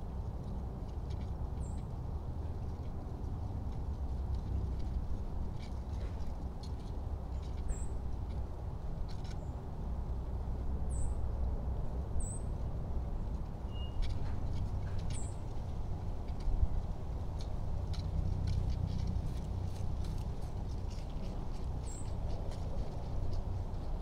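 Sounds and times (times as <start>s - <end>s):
steady low rumble: 0.0s - 24.0s
small bird chirping: 1.6s - 1.9s, 7.3s - 8.0s, 10.9s - 11.2s, 12.2s - 12.6s, 13.3s - 15.6s, 21.7s - 23.4s.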